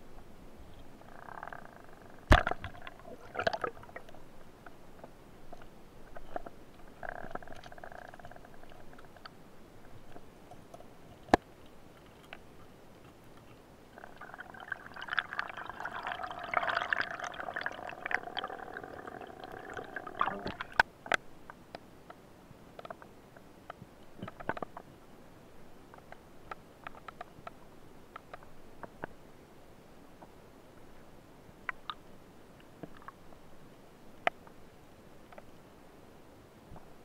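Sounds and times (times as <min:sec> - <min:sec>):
underwater handling noise: 0:00.7 - 0:21.3.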